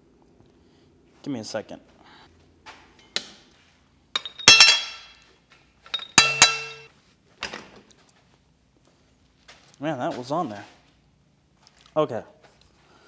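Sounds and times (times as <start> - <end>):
metal-on-metal clanks: 4.2 - 5.2, 5.9 - 6.9.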